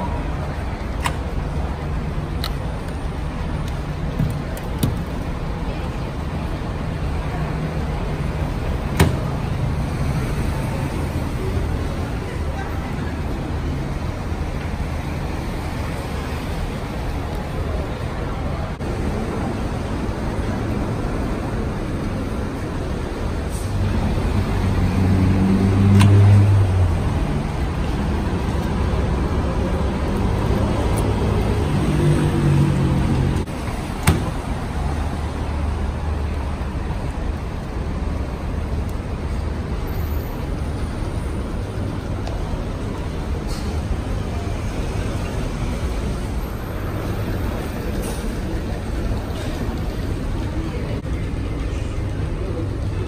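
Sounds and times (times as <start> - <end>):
street traffic rumble: 0.0 - 53.0
vehicle engine passing: 23.7 - 27.8.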